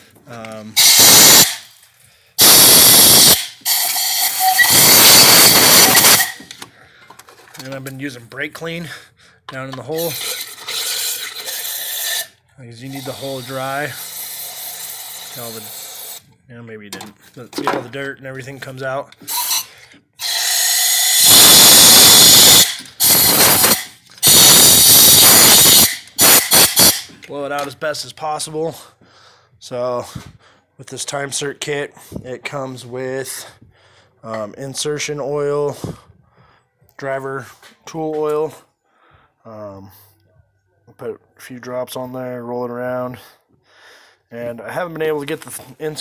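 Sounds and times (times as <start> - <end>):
air blow gun hissing: 0.8 - 1.7, 2.4 - 6.4, 20.3 - 27.1.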